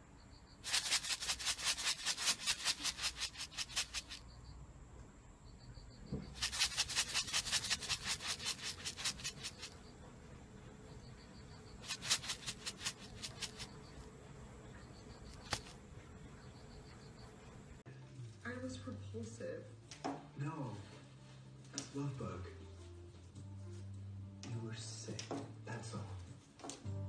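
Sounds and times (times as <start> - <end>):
plastic bag rattling: 0.6 - 4.2, 6.3 - 9.8, 11.8 - 13.7, 15.3 - 15.7.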